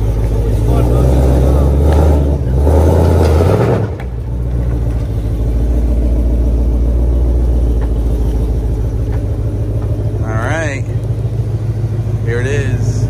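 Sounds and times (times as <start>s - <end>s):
deep engine idle: 0.0s - 2.7s, 4.1s - 13.0s
loud car engine: 0.0s - 13.0s.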